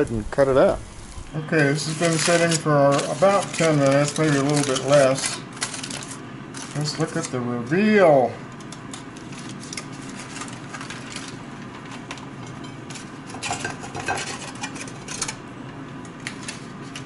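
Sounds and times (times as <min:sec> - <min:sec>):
aluminium foil crinkling: 0:00.9 - 0:15.4, 0:16.2 - 0:17.0
fork scraping ceramic plate: 0:13.4 - 0:15.2.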